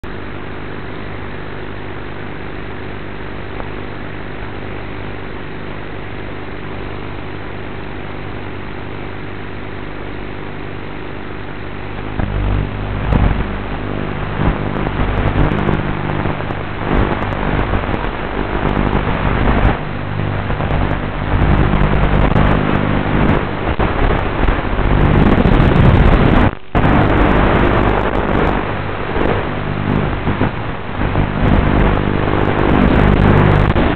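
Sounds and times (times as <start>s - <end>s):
quadcopter motors humming: 11.0s - 33.9s.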